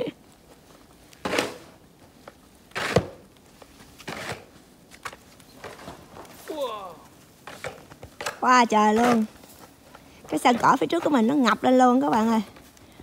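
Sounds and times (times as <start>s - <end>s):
snow shovel scraping snow: 1.2s - 1.8s, 2.7s - 4.6s.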